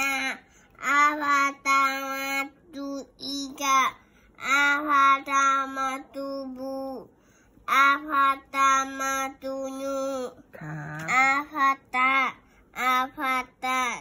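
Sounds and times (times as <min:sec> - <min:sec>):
child chanting sing-song: 0:00.0 - 0:07.1, 0:07.7 - 0:10.4.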